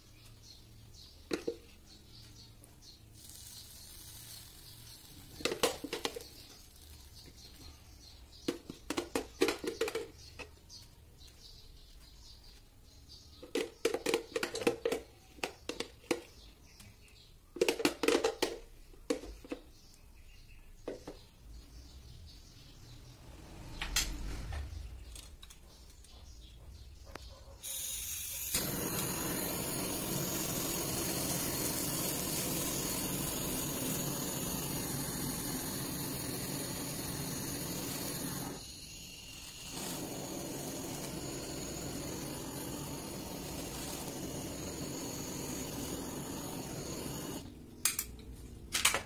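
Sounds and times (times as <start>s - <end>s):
flame gun hissing: 27.6s - 47.5s.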